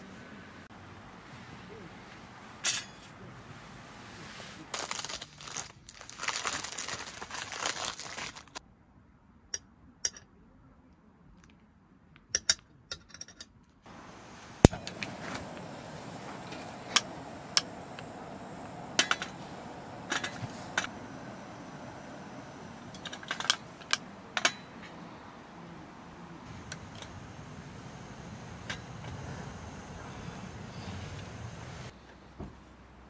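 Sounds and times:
crinkling and rustling: 4.2s - 8.6s
steady background hiss: 13.9s - 33.0s.

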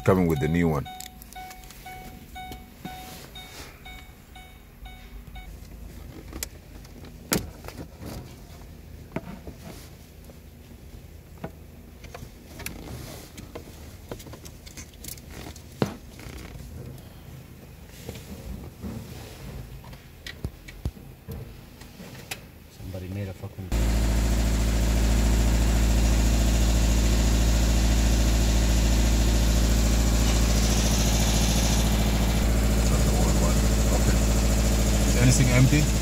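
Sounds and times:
faint rapid beeping: 0.0s - 5.5s.

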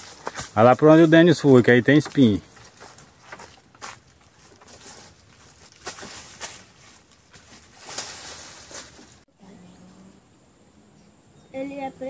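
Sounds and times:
dry leaves crunching underfoot: 0.0s - 9.3s.

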